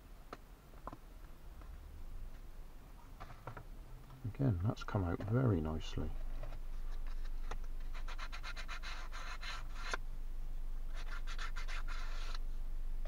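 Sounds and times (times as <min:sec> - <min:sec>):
sandpaper scratching on wood: 0:07.9 - 0:10.0, 0:11.0 - 0:12.4.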